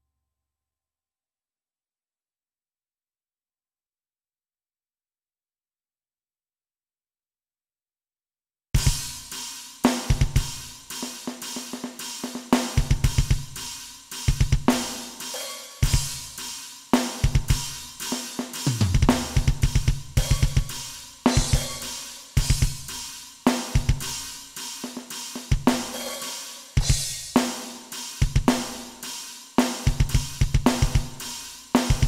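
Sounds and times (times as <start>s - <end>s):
crash cymbal accents: 14.8s - 16.8s, 20.2s - 23.3s, 24.0s - 29.4s
fast kick drum hits: 18.7s - 22.9s.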